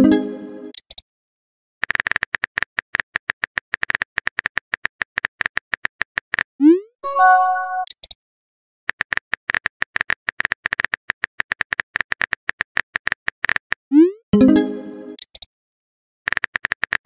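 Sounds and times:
chiming message tone: 7.0 - 7.9, 14.4 - 15.2.

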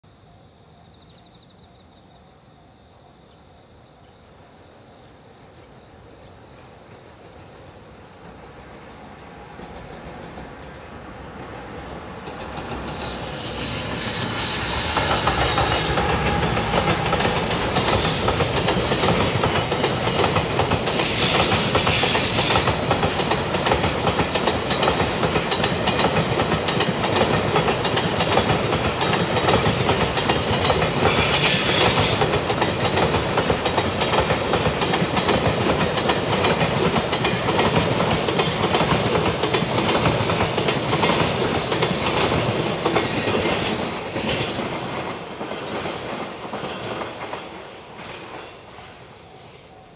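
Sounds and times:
wheels clattering on rails: 12.1 - 48.6.

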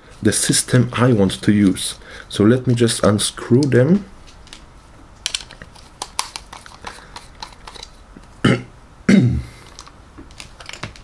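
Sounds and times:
low throat noise: 8.4 - 9.6.

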